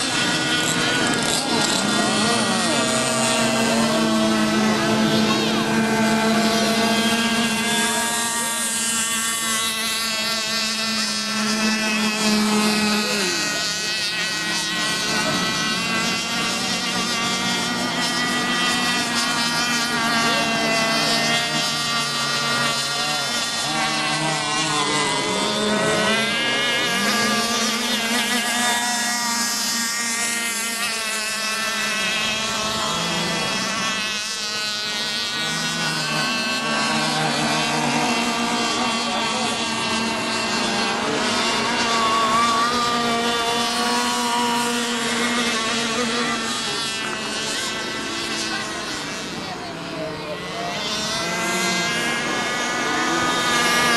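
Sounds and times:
small boat engines whining: 0:00.0 - 0:53.9.

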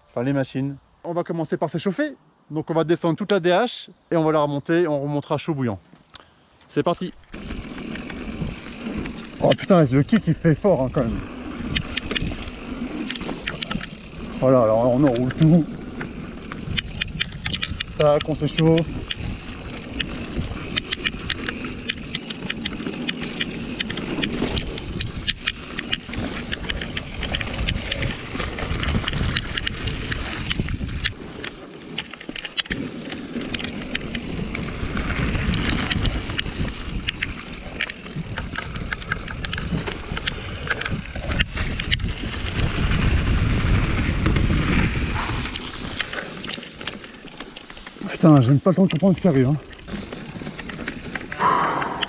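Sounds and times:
bike rattling over bumps: 0:06.7 - 0:52.0
tyres rolling over dirt: 0:06.7 - 0:52.0
wind rushing over microphone: 0:07.2 - 0:22.8, 0:23.4 - 0:31.4, 0:33.5 - 0:37.6, 0:38.2 - 0:46.0, 0:51.4 - 0:52.0.

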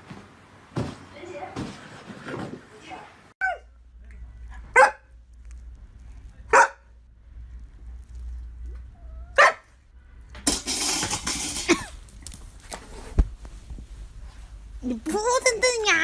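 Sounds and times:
dog barking: 0:04.7 - 0:05.1, 0:06.5 - 0:06.9, 0:09.3 - 0:09.7.

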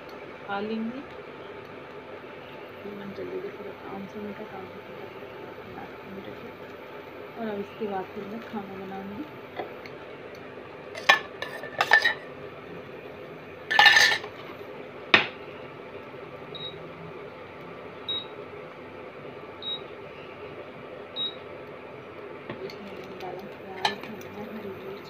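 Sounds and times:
steady low hum: 0:00.0 - 0:25.0
spoon scraping: 0:11.0 - 0:12.2, 0:13.7 - 0:14.4.

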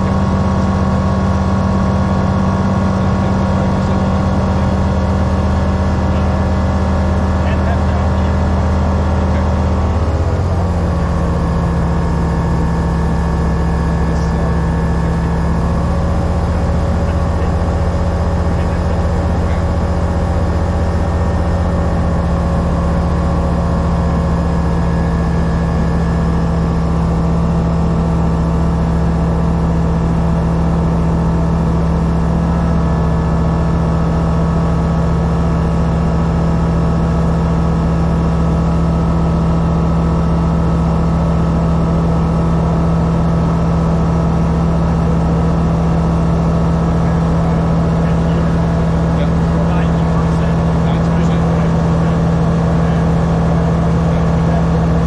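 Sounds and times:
aircraft engine and propeller running: 0:00.0 - 0:55.0.

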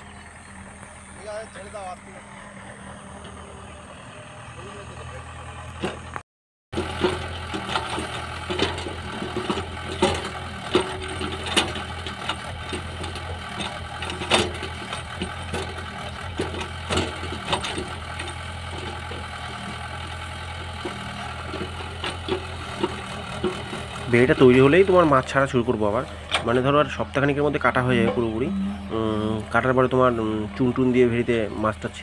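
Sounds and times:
excavator diesel engine running: 0:00.0 - 0:32.0
sharp metal clanks and knocks: 0:06.8 - 0:19.3.

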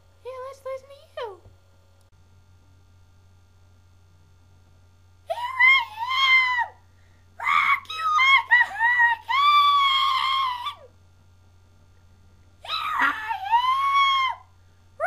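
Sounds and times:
faint steady hum: 0:00.0 - 0:15.0
person shrieking: 0:07.4 - 0:10.9, 0:12.6 - 0:14.5.

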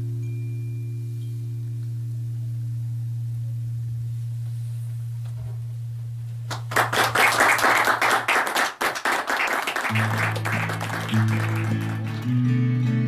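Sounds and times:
audience applause: 0:06.5 - 0:12.4.

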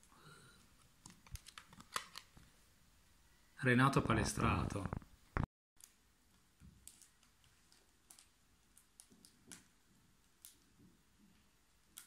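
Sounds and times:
faint clicks and rustles of card: 0:00.0 - 0:02.5, 0:05.8 - 0:12.0.

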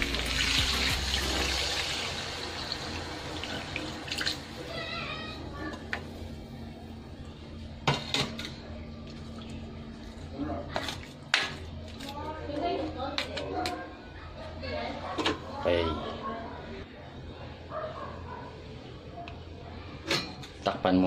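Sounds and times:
water hissing in hot pan: 0:00.0 - 0:04.6.

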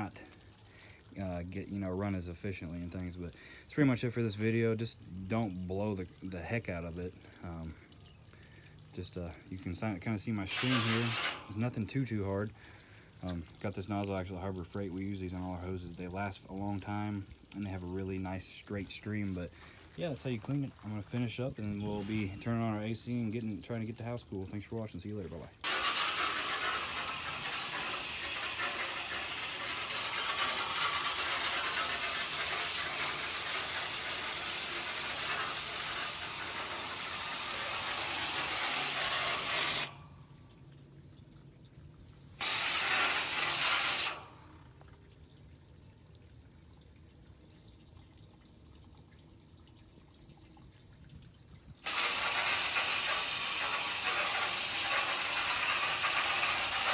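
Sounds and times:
hose water spraying metal fins: 0:00.0 - 0:08.3, 0:08.9 - 0:40.3, 0:42.3 - 0:44.8, 0:51.7 - 0:56.9.

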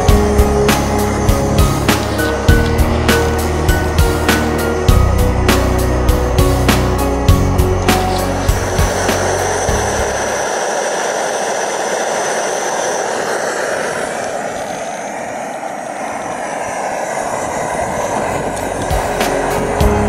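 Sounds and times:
stove burner rushing: 0:00.0 - 0:20.0.

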